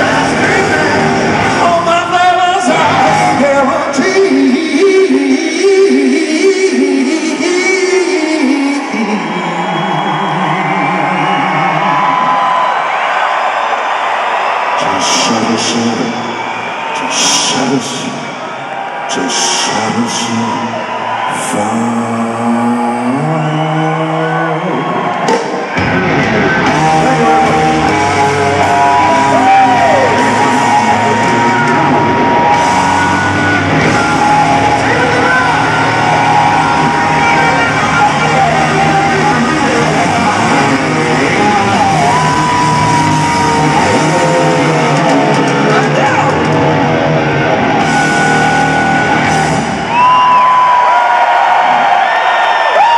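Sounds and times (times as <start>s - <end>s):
electric guitar: 0.0s - 5.4s, 24.3s - 52.9s
live rock band playing: 0.0s - 5.4s, 25.0s - 52.0s.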